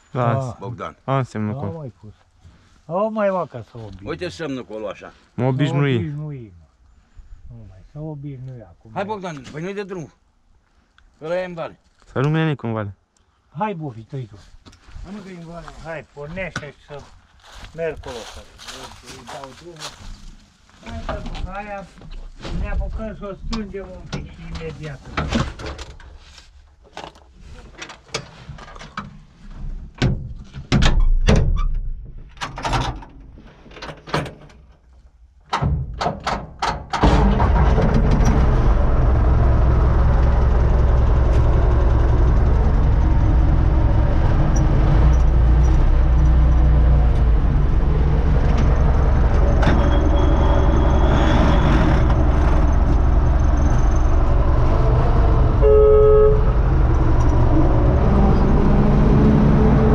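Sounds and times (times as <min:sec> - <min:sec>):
knocks and clicks in cab: 0:35.5 - 0:37.1
diesel tractor engine running: 0:37.0 - 0:59.9.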